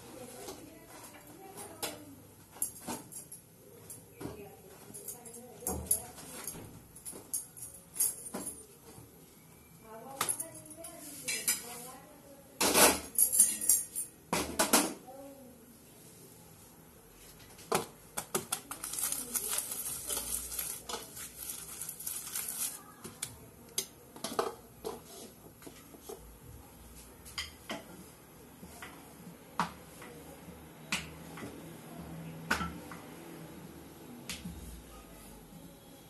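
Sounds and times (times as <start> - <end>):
utensils and pans clinking: 11.1 - 11.8, 12.6 - 14.9.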